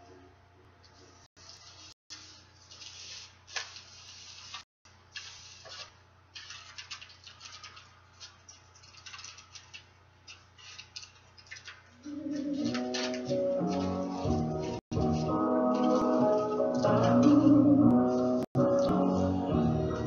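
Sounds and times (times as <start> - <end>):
aluminum foil crinkling: 1.4 - 17.5
background music: 12.1 - 20.0.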